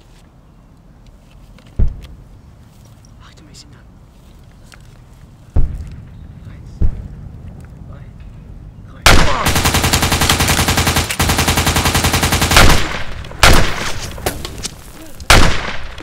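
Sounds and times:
separate gunshots: 0:09.0 - 0:14.4, 0:15.3 - 0:16.0
machine gun burst: 0:09.1 - 0:14.0.

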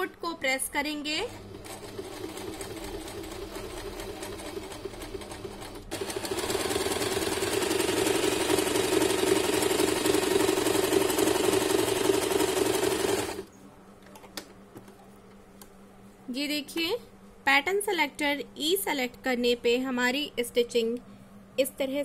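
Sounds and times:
electric sewing machine sewing: 0:01.2 - 0:13.5.

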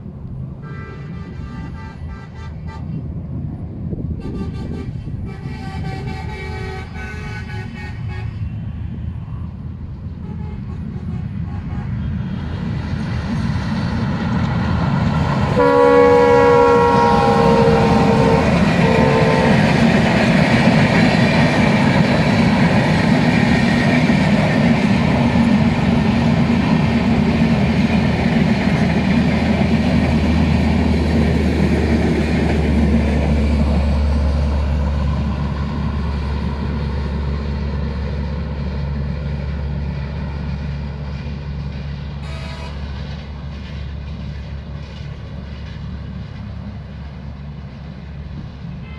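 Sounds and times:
train coaches rolling past: 0:00.0 - 0:48.9
train horn blasts: 0:00.6 - 0:03.0, 0:04.2 - 0:08.5, 0:10.2 - 0:12.2, 0:15.5 - 0:20.1, 0:42.2 - 0:43.0.

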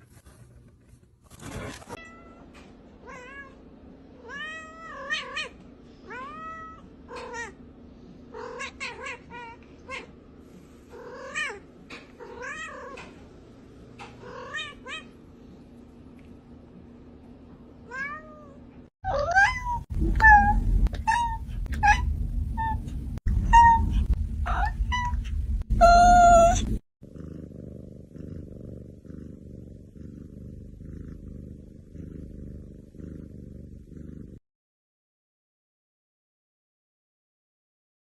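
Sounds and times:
low rumbling noise: 0:19.8 - 0:26.8
cat meowing: 0:23.4 - 0:26.8.

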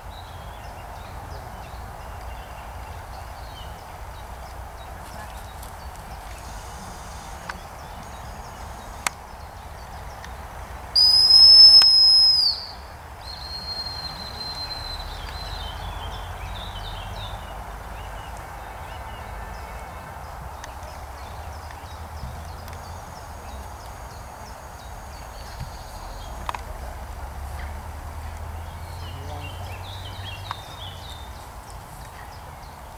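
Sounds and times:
bird-like chirps: 0:00.0 - 0:32.9
outdoor background: 0:00.0 - 0:32.9
dog whistle long blast: 0:11.0 - 0:12.8.

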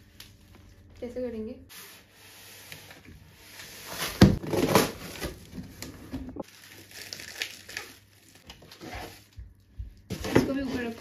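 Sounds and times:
cardboard scraping and rustling: 0:08.6 - 0:09.3.

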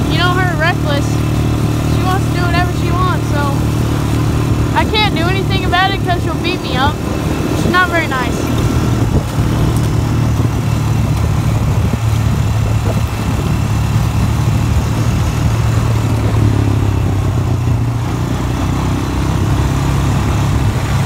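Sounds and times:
atv engine running: 0:00.0 - 0:21.0.

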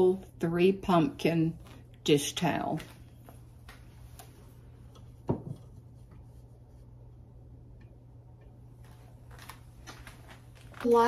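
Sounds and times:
low steady hum: 0:00.0 - 0:11.0
wooden ladder knocking on counter: 0:05.2 - 0:05.8.

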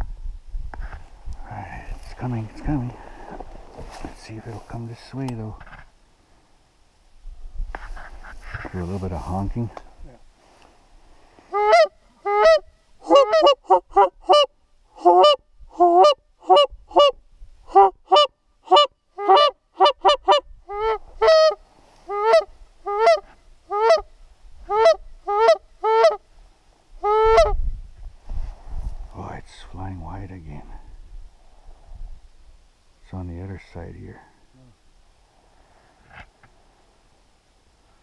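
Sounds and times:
goose honking: 0:11.5 - 0:24.1, 0:24.7 - 0:26.2, 0:27.0 - 0:27.5.

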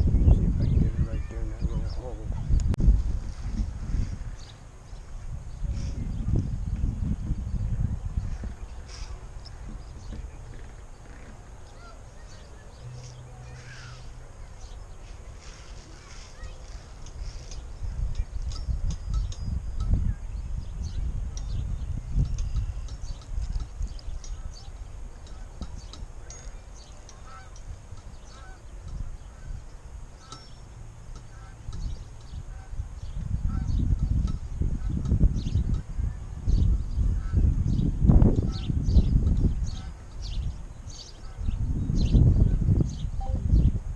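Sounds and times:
small birds chirping: 0:00.0 - 0:02.8, 0:03.4 - 0:43.9
low outdoor rumble: 0:00.0 - 0:43.9
faint bird chirps: 0:05.6 - 0:16.6
goose honking: 0:27.2 - 0:27.6.

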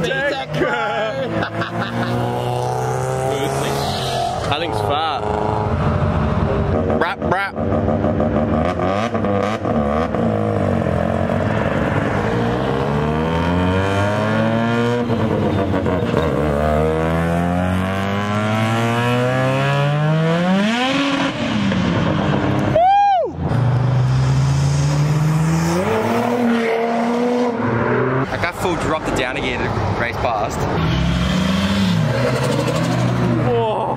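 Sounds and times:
engine revving through gears: 0:01.4 - 0:05.7, 0:12.1 - 0:22.1, 0:23.6 - 0:28.3, 0:30.7 - 0:33.4
tone sweeping up and down: 0:01.4 - 0:07.3.

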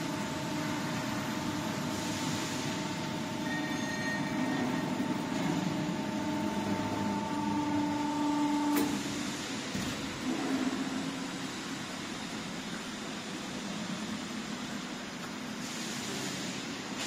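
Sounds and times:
electric motors humming and whining: 0:02.9 - 0:12.9.

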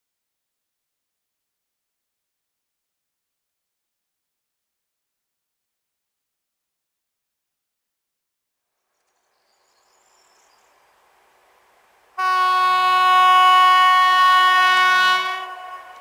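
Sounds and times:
faint train approaching: 0:09.9 - 0:16.0
locomotive air horn: 0:12.2 - 0:16.0.

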